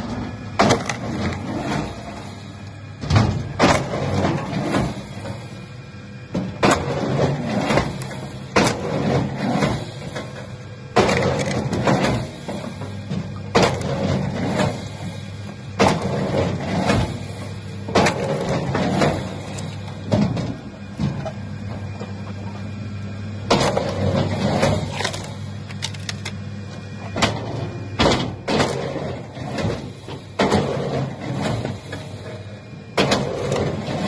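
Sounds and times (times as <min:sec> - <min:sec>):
heavy machine engine hum: 0:00.0 - 0:34.0
loud clatters and bangs: 0:03.0 - 0:05.0.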